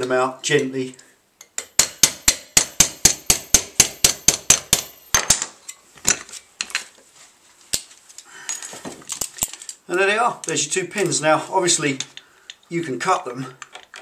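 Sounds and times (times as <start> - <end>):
hammer tapping a steel drift: 1.5 - 5.0.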